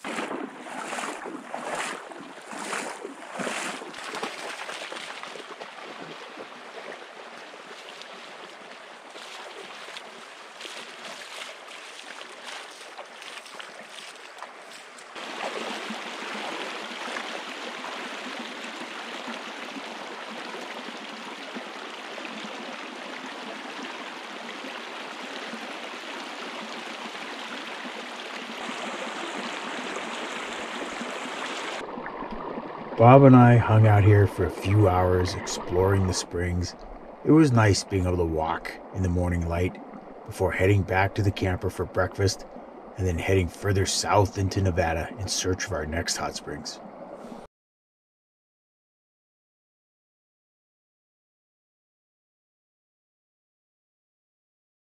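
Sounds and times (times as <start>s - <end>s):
person wading through water: 0.0s - 38.0s
creek water running and lapping: 0.0s - 47.5s.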